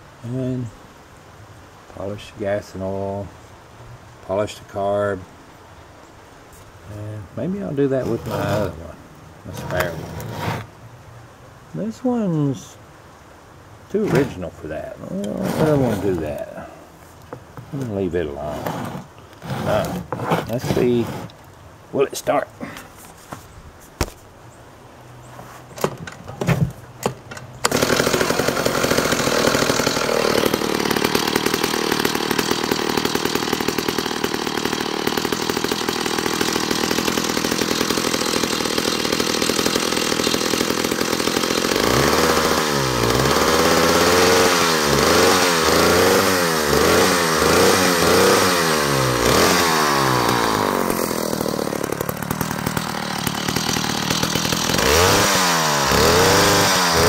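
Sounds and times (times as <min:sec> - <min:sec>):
chainsaw engine revving: 0:08.0 - 0:08.9, 0:09.5 - 0:10.7, 0:14.0 - 0:14.4, 0:15.1 - 0:16.7, 0:18.3 - 0:21.3, 0:27.6 - 0:57.0
chainsaw engine running: 0:08.0 - 0:08.9, 0:09.5 - 0:10.7, 0:14.0 - 0:14.4, 0:15.1 - 0:16.7, 0:18.4 - 0:21.3, 0:27.6 - 0:57.0
chainsaw starter clicks and knocks: 0:09.6 - 0:10.3, 0:25.8 - 0:44.3.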